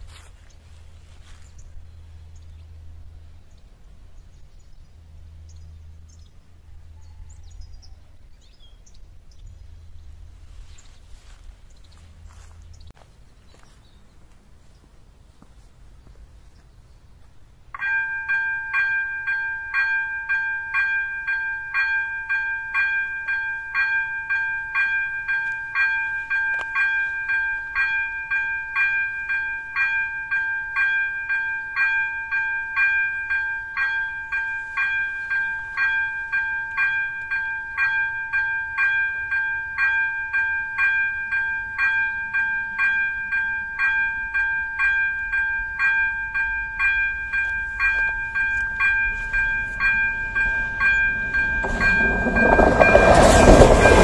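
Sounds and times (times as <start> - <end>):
level crossing bell ringing: 17.8 - 54.0.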